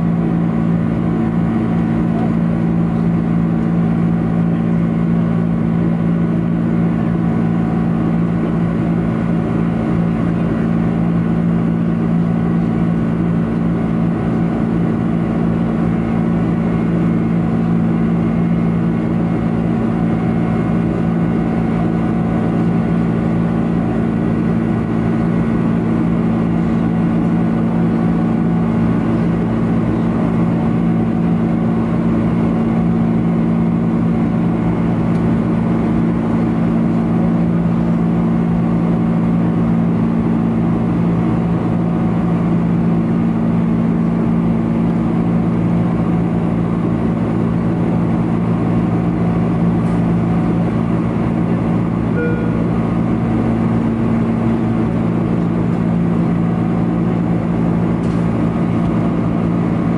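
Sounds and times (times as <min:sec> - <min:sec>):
low drone: 0:47.8 - 0:59.9.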